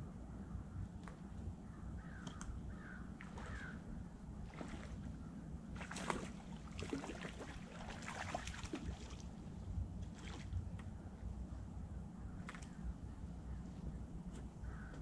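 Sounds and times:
fish thrashing and splashing: 5.8 - 9.2.

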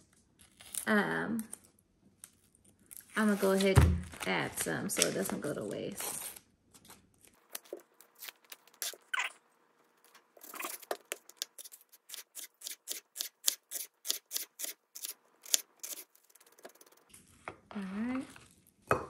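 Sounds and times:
knife slicing onion on board: 10.4 - 17.6.

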